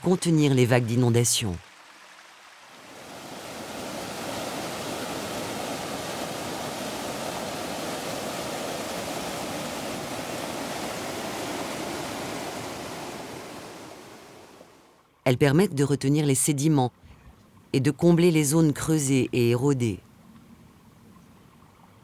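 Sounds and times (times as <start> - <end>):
stream water rushing: 0.0 - 15.1.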